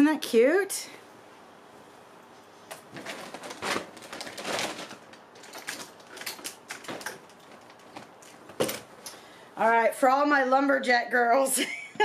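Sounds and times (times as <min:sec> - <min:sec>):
clothing rustling: 0:02.2 - 0:09.4
plastic packaging crinkling: 0:02.7 - 0:08.8.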